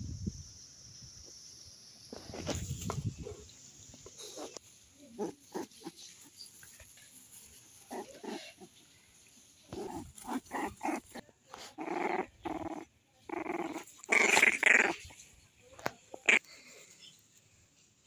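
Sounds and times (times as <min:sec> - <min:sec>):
puppies growling: 0:05.2 - 0:06.1, 0:07.8 - 0:08.8, 0:09.7 - 0:15.1.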